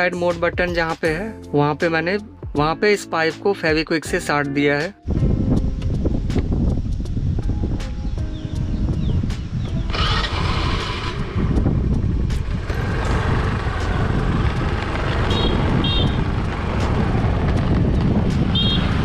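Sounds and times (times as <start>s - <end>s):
wind and road rumble: 5.0s - 19.0s
scooter engine running: 9.5s - 19.0s.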